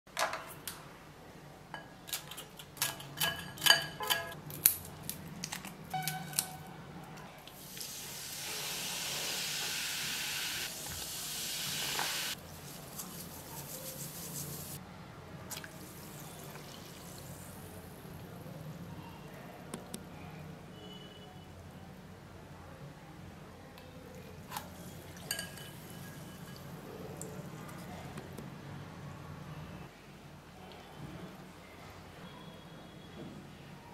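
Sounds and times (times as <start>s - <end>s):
soda pouring and fizzing: 15.7s - 17.7s
pieces clinking into glass bowl: 25.1s - 26.8s.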